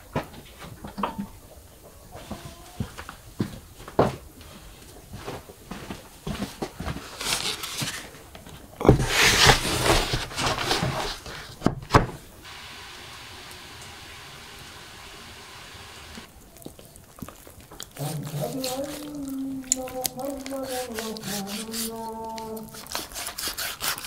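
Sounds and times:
rustling handling noise: 2.2s - 12.5s.

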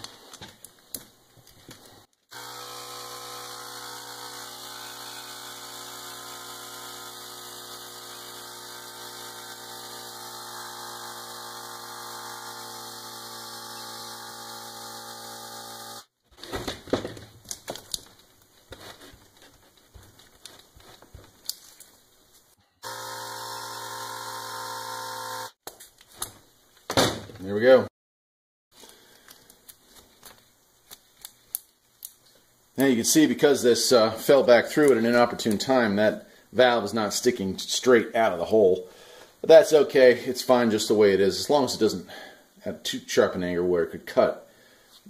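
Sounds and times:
air compressor running: 2.3s - 16.1s, 22.8s - 25.6s.

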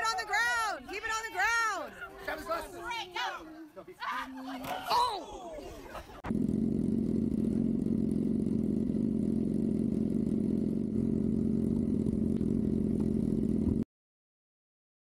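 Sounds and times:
motorcycle engine idling: 6.1s - 13.8s.

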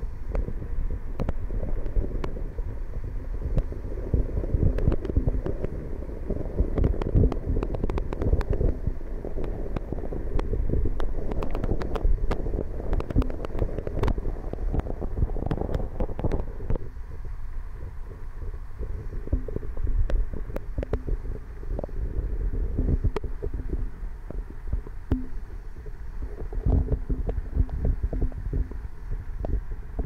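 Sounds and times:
muffled underwater rumble: 0.0s - 30.0s
sharp clicks and crackles: 0.3s - 2.4s, 4.6s - 5.8s, 6.6s - 16.9s, 18.8s - 22.0s, 22.6s - 28.8s.

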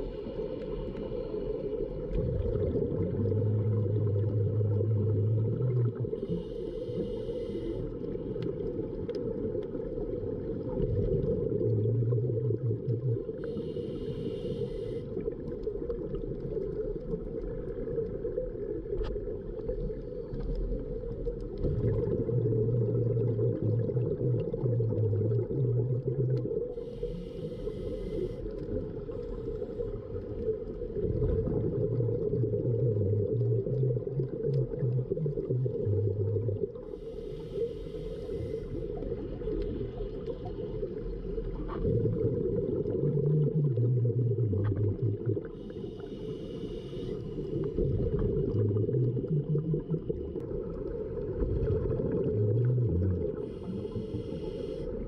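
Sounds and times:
exhaled bubbles: 0.0s - 14.4s, 15.0s - 55.0s
steady low underwater rumble: 0.0s - 55.0s
diver breathing through regulator: 6.2s - 8.0s, 13.4s - 15.2s, 26.7s - 28.6s, 36.9s - 39.0s, 45.6s - 47.8s, 53.4s - 55.0s.

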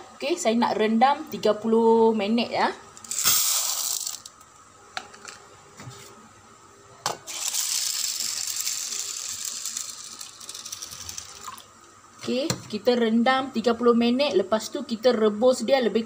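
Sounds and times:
lentils rattling into bowl: 3.1s - 4.3s, 7.3s - 11.5s.

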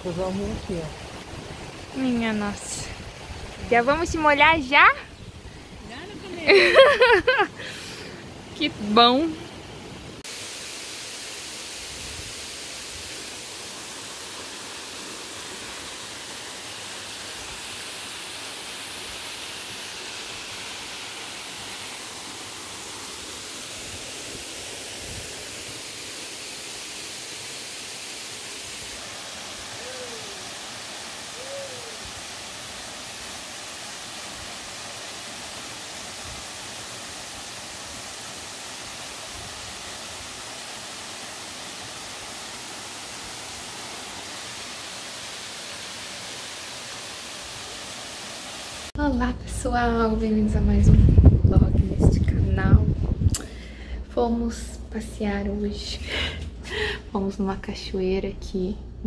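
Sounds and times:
waterfall and stream rushing: 0.0s - 49.0s
sliding bird calls: 29.6s - 30.6s.

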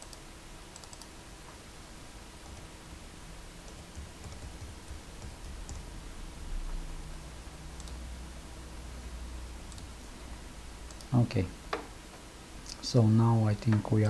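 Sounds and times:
keyboard typing: 0.0s - 1.1s, 2.4s - 2.7s, 3.6s - 5.9s, 7.8s - 8.0s, 10.9s - 11.3s
mouse clicking: 0.0s - 1.1s, 3.6s - 5.9s, 7.8s - 8.0s, 9.7s - 9.9s, 10.9s - 11.2s
low background hum: 0.0s - 14.0s.

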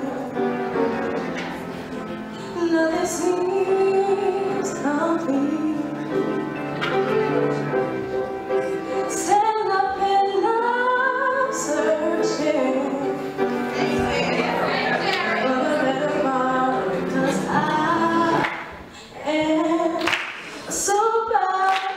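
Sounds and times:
woman singing: 0.0s - 0.5s, 2.5s - 6.0s, 8.9s - 13.2s, 13.8s - 21.9s
instrumental accompaniment: 0.0s - 19.9s.

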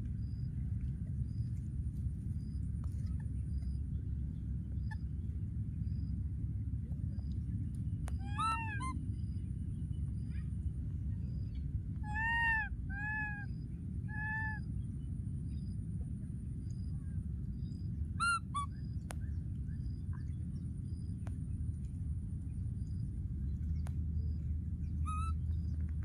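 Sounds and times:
low rumble: 0.0s - 26.0s
baby macaques cooing: 8.2s - 8.9s, 12.0s - 13.5s, 14.1s - 14.6s.

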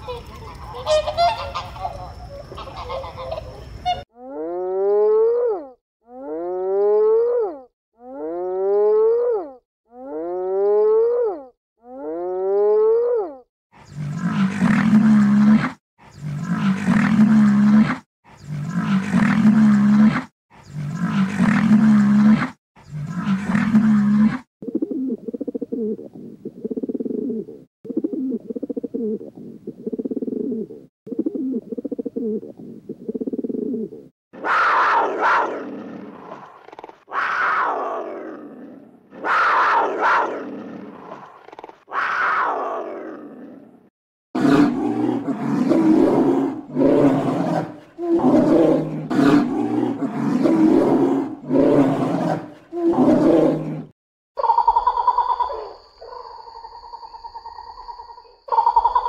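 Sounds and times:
animal calls: 0.0s - 24.4s, 33.3s - 38.1s, 39.1s - 42.9s, 54.4s - 59.0s.

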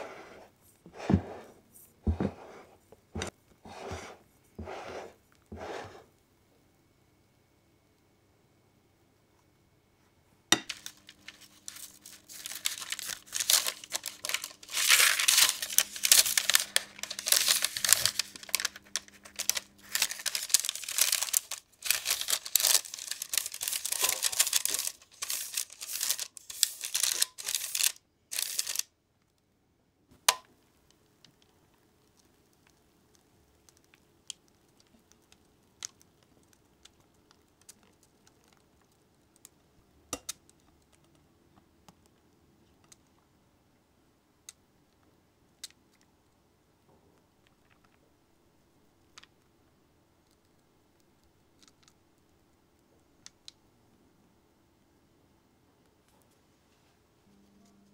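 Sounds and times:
paper crinkling and rustling: 10.7s - 28.9s.

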